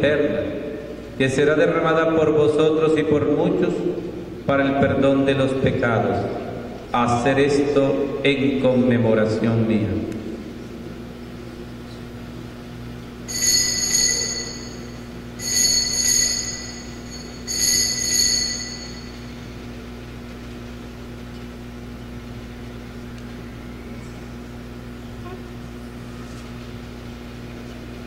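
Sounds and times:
low hum: 3.0s - 28.0s
altar bells ringing: 13.3s - 19.7s.

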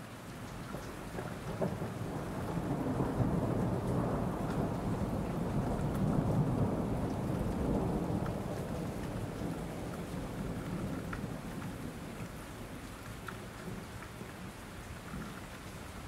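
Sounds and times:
steady rain: 0.0s - 16.0s
thunder rumbling: 1.4s - 12.3s.

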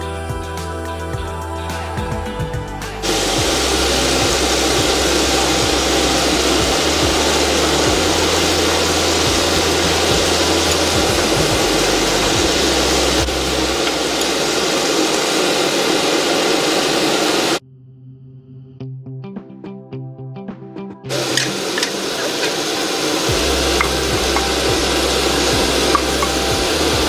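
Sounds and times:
steady low hum: 2.2s - 17.6s, 21.1s - 27.0s
food sizzling in a pan: 3.0s - 17.6s, 21.1s - 27.0s.

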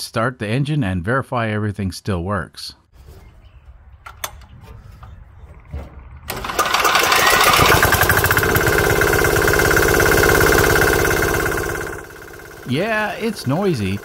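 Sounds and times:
diesel engine clattering: 4.0s - 14.0s.

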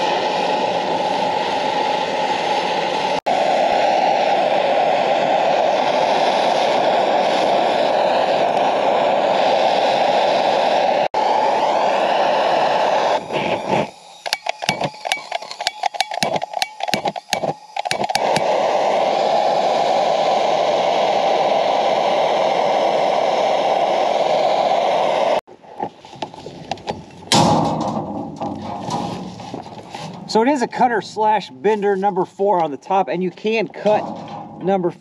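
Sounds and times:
propane torch flame hissing: 0.0s - 25.4s
torch clicks and sputters: 5.2s - 25.4s.

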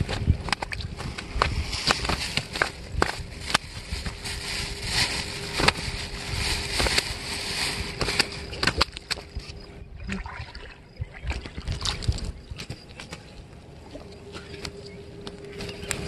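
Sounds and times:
fish flapping on grass: 0.0s - 9.4s.

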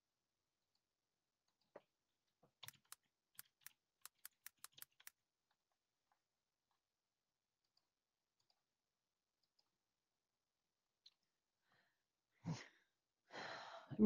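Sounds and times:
computer keyboard typing: 2.6s - 5.1s.

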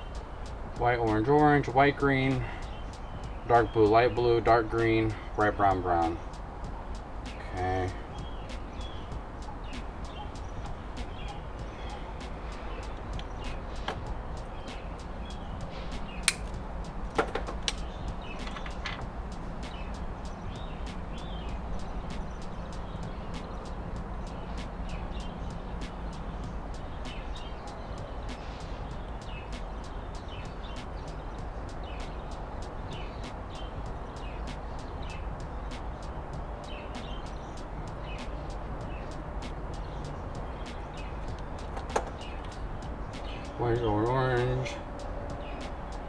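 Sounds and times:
faint bird chirps: 2.2s - 16.3s
sharp high ticks: 6.2s - 43.9s, 44.6s - 46.0s.

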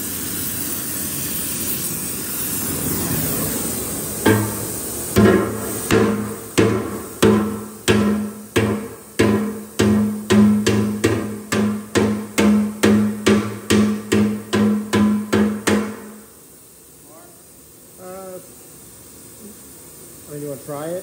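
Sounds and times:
pipe ringing with low hum: 4.2s - 15.4s
sledgehammer striking steel pipe: 4.2s - 16.2s.

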